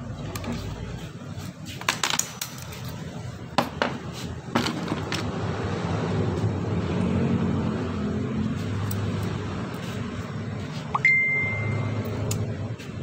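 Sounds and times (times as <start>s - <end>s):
vehicle engine humming: 3.0s - 13.0s.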